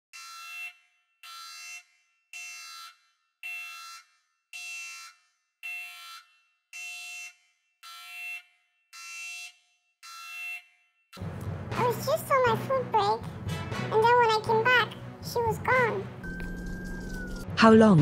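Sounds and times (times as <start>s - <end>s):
electronic alarm beeping: 0.1s - 10.7s, 16.2s - 17.5s.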